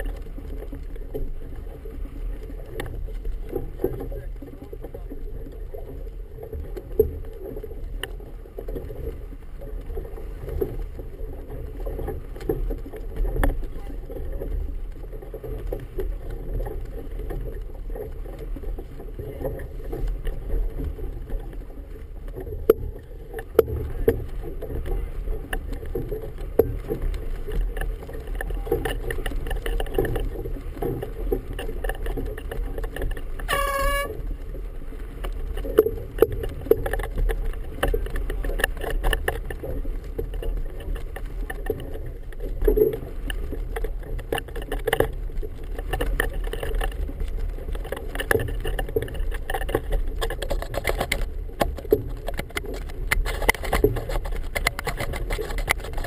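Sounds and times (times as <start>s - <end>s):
water lapping against boat hull: 0.0s - 56.0s
horn blast: 33.5s - 34.2s.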